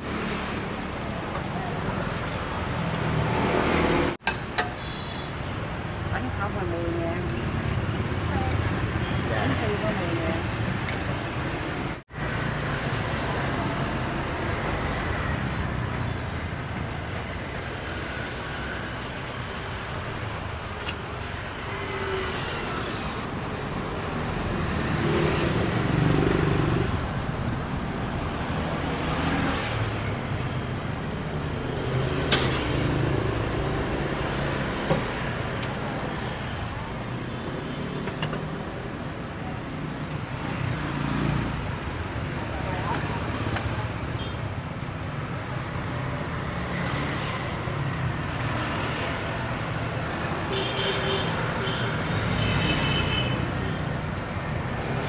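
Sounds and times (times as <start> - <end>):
street traffic: 0.0 - 55.0.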